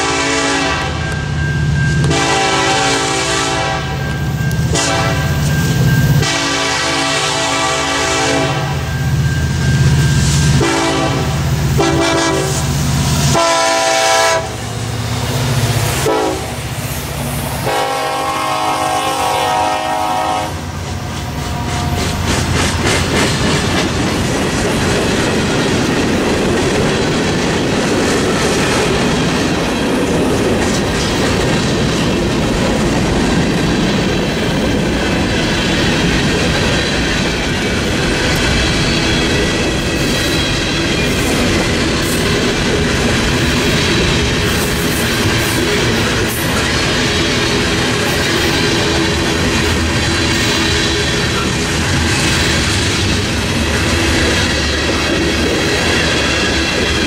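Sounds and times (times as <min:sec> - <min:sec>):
train air horn blasts: 0:00.0 - 0:01.0, 0:02.0 - 0:05.4, 0:06.2 - 0:08.8, 0:10.5 - 0:14.7, 0:16.0 - 0:16.7, 0:17.6 - 0:20.7
wheels clacking over rail joints: 0:20.8 - 0:57.0.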